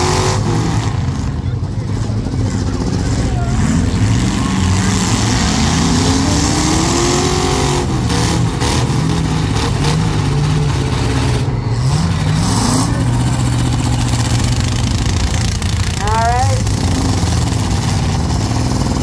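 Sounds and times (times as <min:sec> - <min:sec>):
car engines revving: 0:00.0 - 0:19.0
cars knocking: 0:00.0 - 0:19.0.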